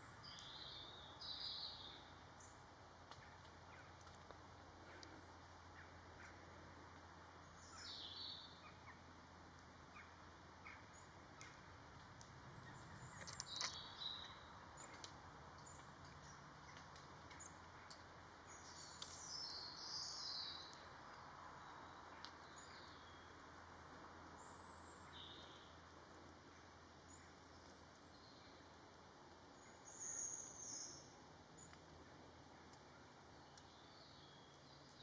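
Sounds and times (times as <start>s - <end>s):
birds chirping and twittering: 0.0s - 6.7s, 7.4s - 9.1s, 9.8s - 11.7s, 12.6s - 25.8s, 29.4s - 35.0s
faint clicks: 3.0s - 5.2s, 11.4s - 13.9s, 14.8s - 18.1s, 22.1s - 22.7s, 31.6s - 31.9s.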